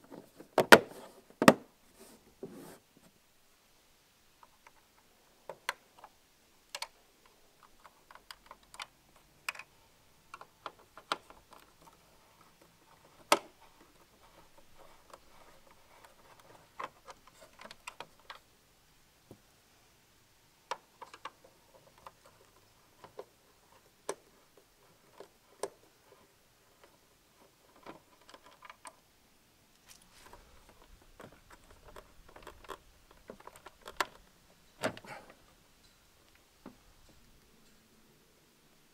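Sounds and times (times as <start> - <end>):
plastic clips rubbing: 6.7 - 18.5, 20.7 - 29.0, 29.8 - 35.6.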